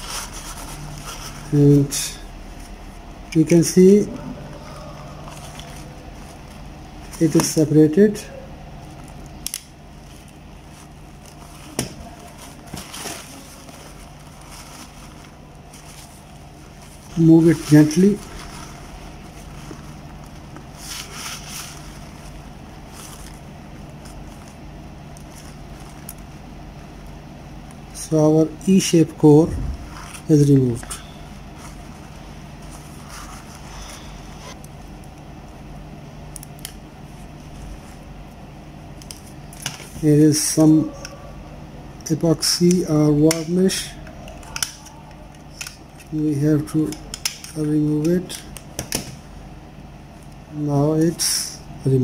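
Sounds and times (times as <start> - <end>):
low electrical hum: 0.0 - 52.0
crackly rustle: 8.7 - 28.0.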